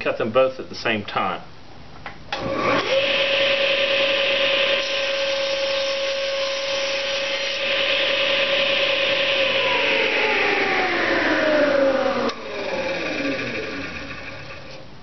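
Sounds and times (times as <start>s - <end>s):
table saw motor running: 2.4s - 14.8s
saw blade cutting wood: 2.7s - 9.8s.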